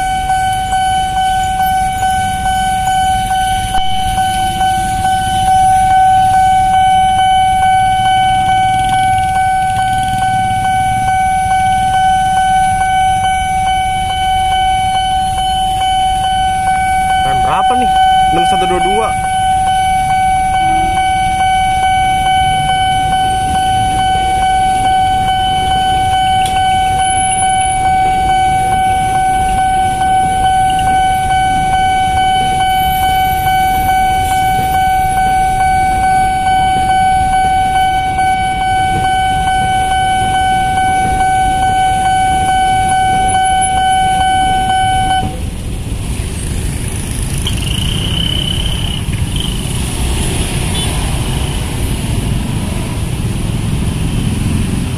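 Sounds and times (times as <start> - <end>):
short high beep: 0.0 - 45.4
level crossing alarm tone: 0.0 - 45.5, 47.5 - 50.9
idling motorbikes and cars: 0.0 - 54.9.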